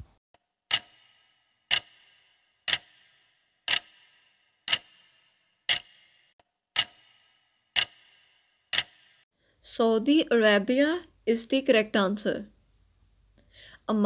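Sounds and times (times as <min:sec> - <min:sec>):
clock ticking with bright ring: 0:00.7 - 0:09.3.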